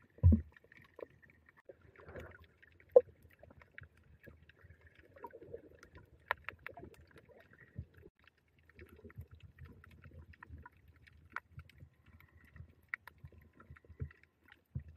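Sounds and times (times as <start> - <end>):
muffled underwater rumble: 0.0 - 8.1
small sharp clicks and crackles: 0.0 - 14.9.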